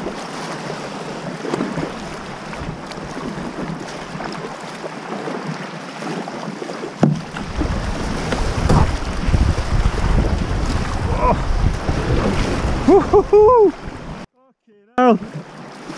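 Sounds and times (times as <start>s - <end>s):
water sloshing around kayak: 0.0s - 14.3s, 15.1s - 15.9s
wind rumbling on microphone: 7.2s - 14.3s.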